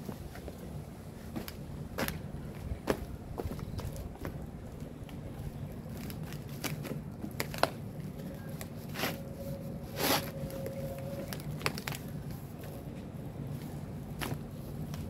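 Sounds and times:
cardboard rustling and crinkling: 0:01.2 - 0:12.9
cardboard cracking: 0:05.1 - 0:09.2.

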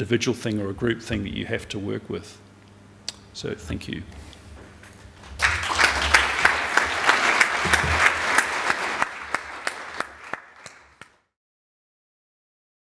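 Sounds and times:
audience applauding: 0:05.2 - 0:11.2.

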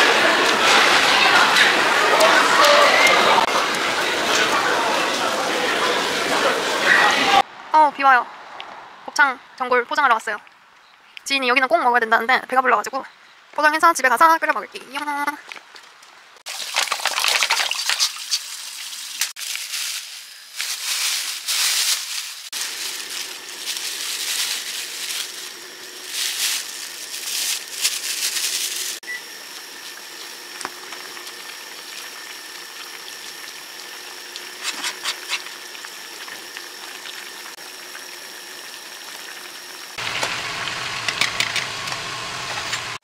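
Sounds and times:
rain falling and splashing: 0:39.8 - 0:41.3.

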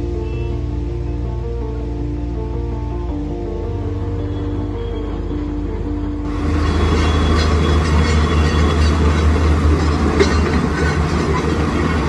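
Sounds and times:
excavator diesel engine droning: 0:00.0 - 0:12.0
floodwater rushing: 0:06.3 - 0:12.0.

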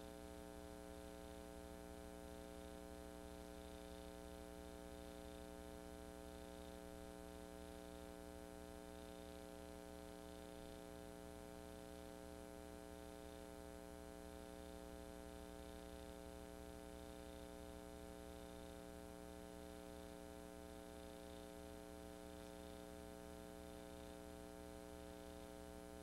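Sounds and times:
electrical hum with hiss: 0:00.0 - 0:26.0.

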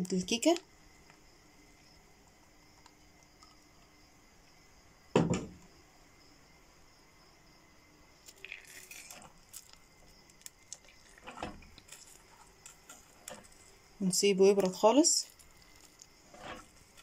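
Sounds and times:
dull knock: 0:05.2 - 0:05.6.

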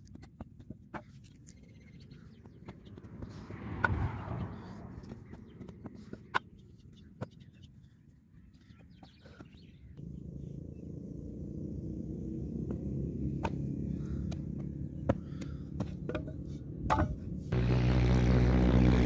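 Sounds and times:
loud engine drone: 0:10.0 - 0:19.0
low engine drone: 0:10.0 - 0:19.0.

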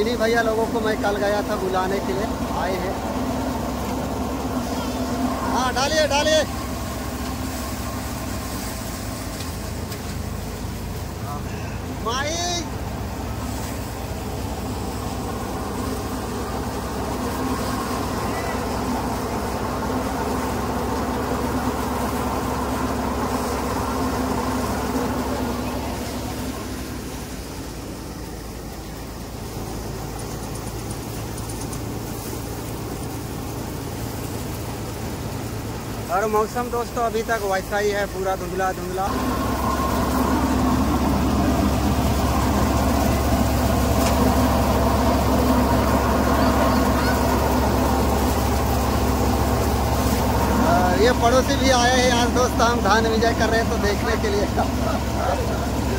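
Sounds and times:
thresher mechanical hum: 0:00.0 - 0:55.9
tractor engine drone: 0:00.0 - 0:55.9.

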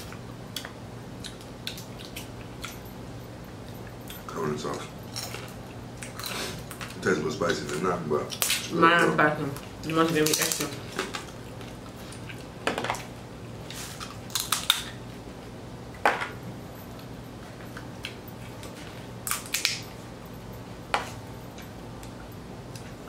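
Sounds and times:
crab shells cracking: 0:14.0 - 0:15.0, 0:19.2 - 0:19.8.

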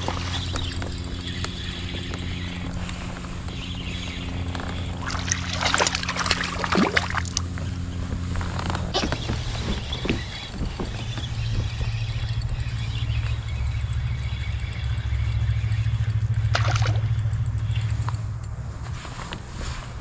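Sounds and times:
fish splashing: 0:00.0 - 0:03.0, 0:04.4 - 0:08.0, 0:15.6 - 0:17.8
fishing reel ticking: 0:00.0 - 0:20.0
low rumble: 0:00.0 - 0:20.0.

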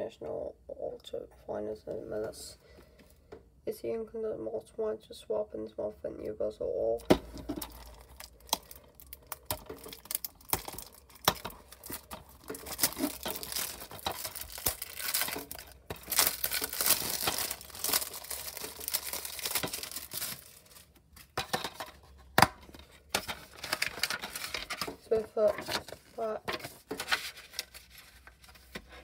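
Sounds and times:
shrink wrap tearing and crinkling: 0:07.4 - 0:21.4, 0:22.8 - 0:29.0.

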